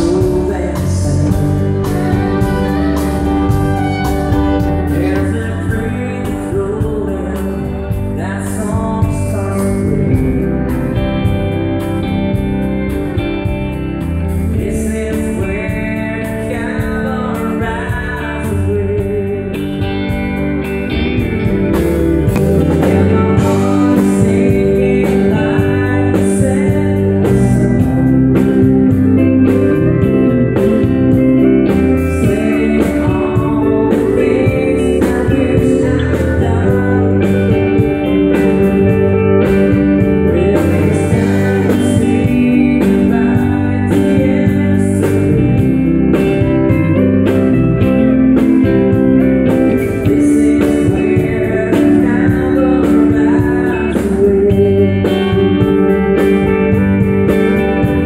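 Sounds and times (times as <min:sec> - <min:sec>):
man singing: 0:00.0 - 0:11.4, 0:14.2 - 0:20.3, 0:21.1 - 0:58.0
electric guitar: 0:00.0 - 0:58.0
steady beat: 0:01.4 - 0:05.4, 0:21.0 - 0:24.7.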